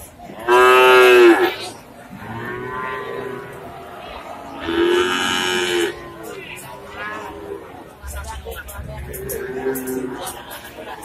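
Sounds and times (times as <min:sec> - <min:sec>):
cattle mooing: 0:00.4 - 0:08.0.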